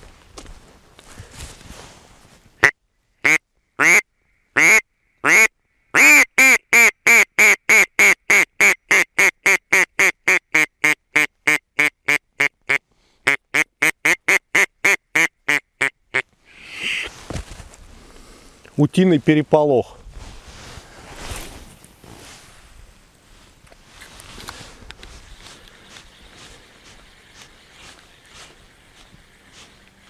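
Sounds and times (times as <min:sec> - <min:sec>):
duck call quacking: 0:02.6 - 0:04.0, 0:04.6 - 0:17.1.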